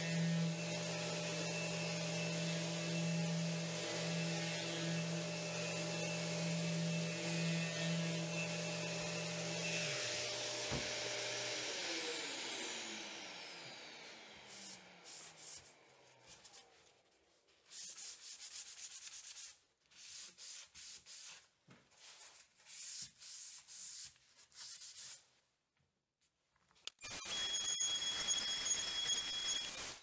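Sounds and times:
electric sander winding down: 0.1s - 15.0s
hand sanding wood: 14.5s - 15.7s, 16.3s - 25.4s.

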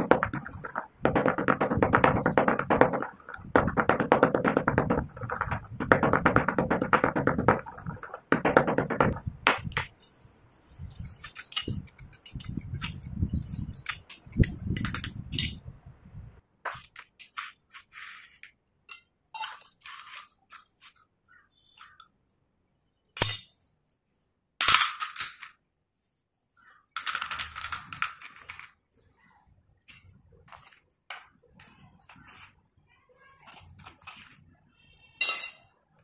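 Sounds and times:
pestle grinding in stone mortar: 0.0s - 9.8s, 10.9s - 14.9s
pestle knocking against bowl: 0.0s - 9.9s.

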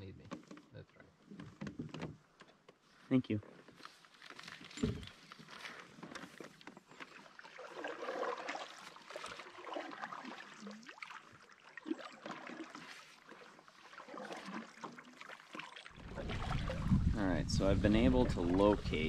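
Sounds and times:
water trickling and lapping: 0.3s - 19.0s
small splashes: 4.4s - 17.2s.

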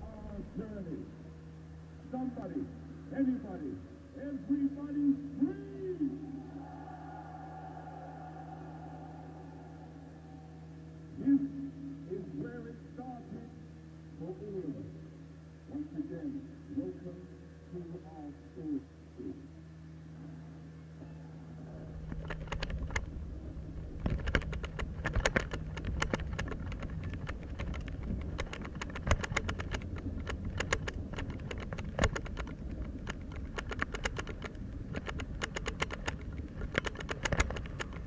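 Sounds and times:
sharp clicks and rattles: 22.0s - 23.2s, 23.8s - 38.0s.

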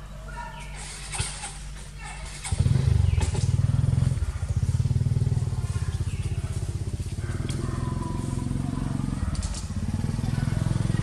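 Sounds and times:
small engine running: 2.3s - 11.0s.

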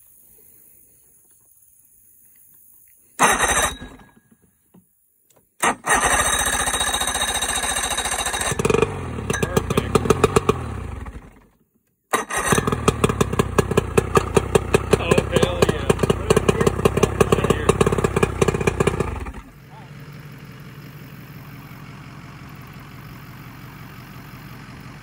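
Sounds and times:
engine firing unevenly and sputtering: 3.2s - 4.2s, 5.6s - 25.0s
outboard motor cranking: 3.2s - 4.2s, 5.6s - 11.5s, 12.1s - 19.6s.

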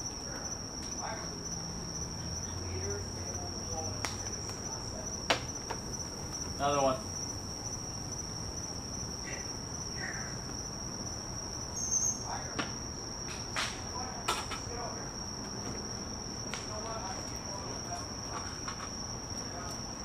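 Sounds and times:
night insects chirring: 0.0s - 20.0s
acorns bouncing off wooden deck: 4.0s - 6.6s.

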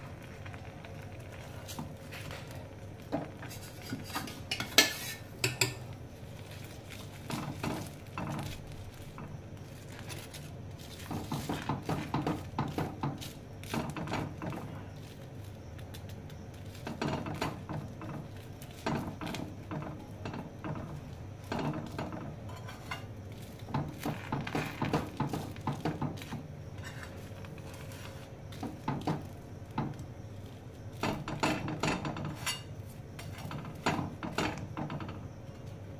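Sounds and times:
spoon tapping and scraping iron pan: 3.4s - 5.8s, 18.8s - 23.1s, 23.7s - 27.2s.

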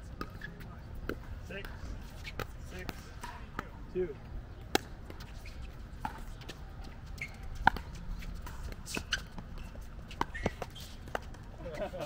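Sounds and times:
ball bouncing on court: 6.0s - 11.4s.

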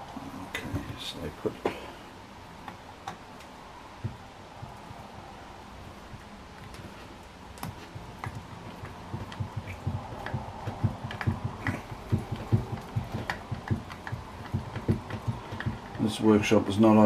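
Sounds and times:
small clicks and light knocks: 2.6s - 5.3s, 6.0s - 16.1s.

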